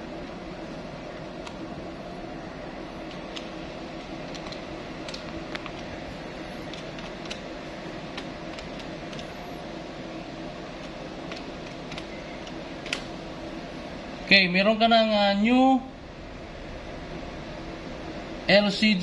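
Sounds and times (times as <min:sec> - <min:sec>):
machinery hum: 0:00.0 - 0:19.0
calculator keys clicking: 0:04.2 - 0:05.9, 0:06.6 - 0:07.4, 0:08.1 - 0:09.3, 0:10.8 - 0:13.1.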